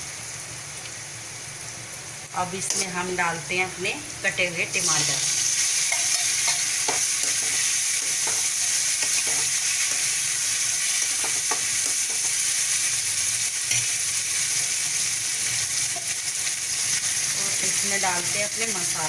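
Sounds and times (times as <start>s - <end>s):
onions sizzling in hot oil: 0.0s - 19.0s
spatula scraping a metal pan: 5.5s - 10.2s.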